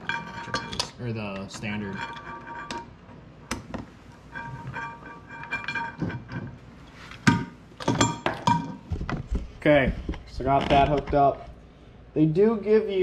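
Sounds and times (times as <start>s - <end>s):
metal clinks and taps: 7.3s - 8.9s.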